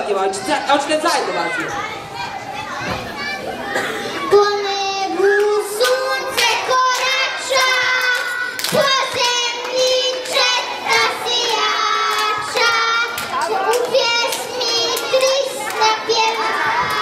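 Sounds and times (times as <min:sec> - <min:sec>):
children singing together: 0:03.8 - 0:17.0
hand claps: 0:05.3 - 0:17.0.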